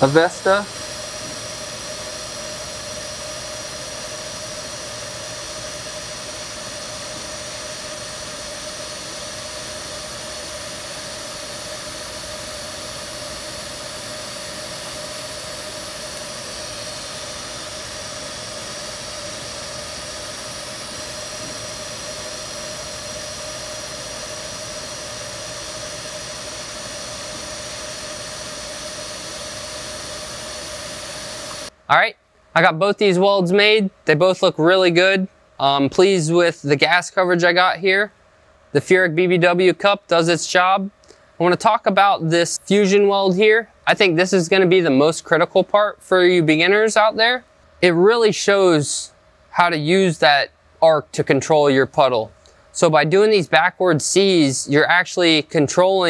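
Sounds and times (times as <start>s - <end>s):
welding arc hissing: 0.0s - 31.7s.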